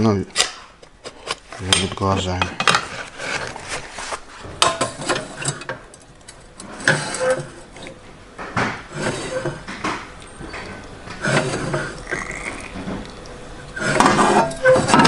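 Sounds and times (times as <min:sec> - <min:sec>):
metal clanks and knocks: 0:04.4 - 0:06.0, 0:06.6 - 0:12.1, 0:13.8 - 0:15.0.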